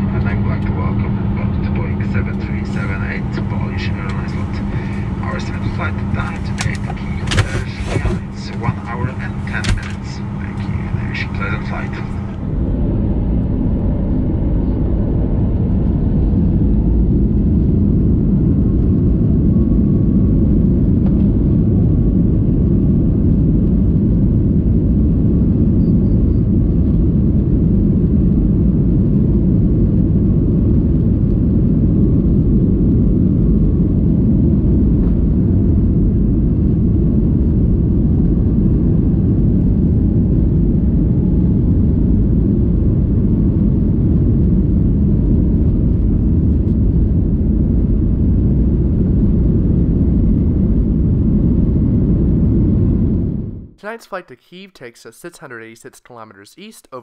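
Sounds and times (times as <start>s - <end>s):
airplane cabin engine rumble: 0.0s - 53.8s
rushing air: 3.9s - 5.4s.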